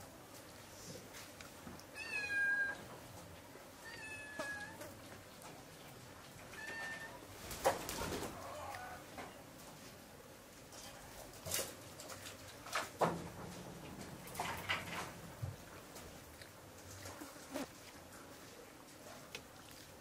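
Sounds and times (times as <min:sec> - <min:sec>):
cat meowing: 0:02.0 - 0:02.8, 0:03.8 - 0:04.8, 0:06.6 - 0:07.2.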